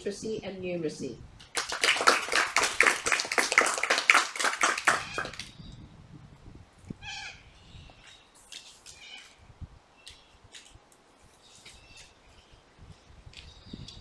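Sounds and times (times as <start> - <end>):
audience clapping: 1.5 - 5.5
short high calls: 4.7 - 5.5.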